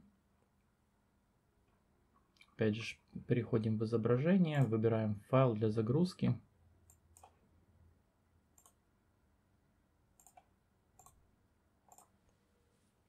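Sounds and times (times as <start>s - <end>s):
faint low hum: 0.0s - 13.0s
computer mouse clicks: 6.9s - 7.4s, 8.6s - 8.8s, 10.2s - 11.2s, 11.8s - 12.4s.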